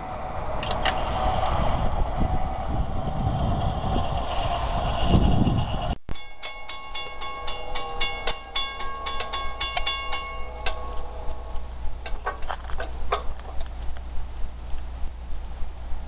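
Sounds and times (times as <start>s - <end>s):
crossing warning bell ringing: 6.1s - 15.3s.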